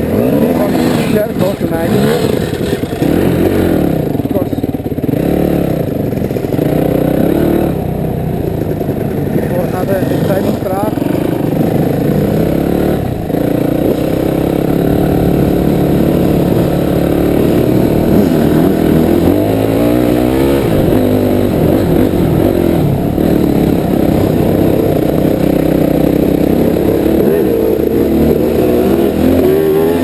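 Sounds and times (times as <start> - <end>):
dirt bike engine revving: 0.0 - 30.0.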